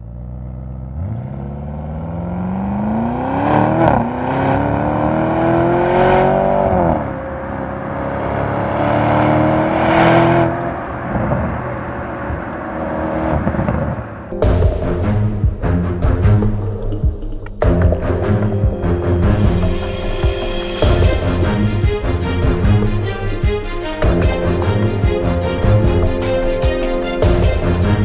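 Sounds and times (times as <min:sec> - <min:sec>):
car engine accelerating hard: 0:00.0 - 0:16.7.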